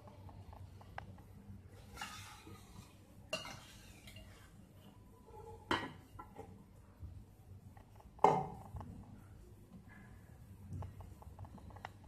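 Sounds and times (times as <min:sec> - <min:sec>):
metal spoon scraping steel pot: 0:01.8 - 0:04.4.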